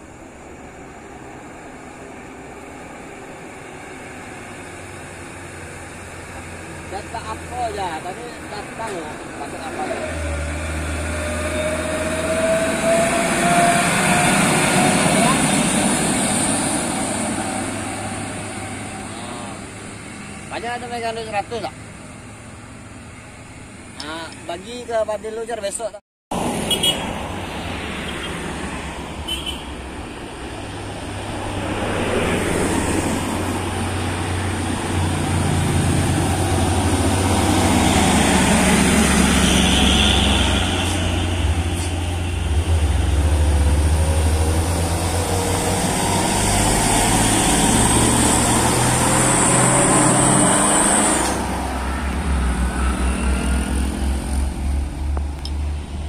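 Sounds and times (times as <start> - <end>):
heavy diesel trucks passing: 0.0 - 56.0
motorcycle passing: 4.6 - 23.6, 30.3 - 56.0.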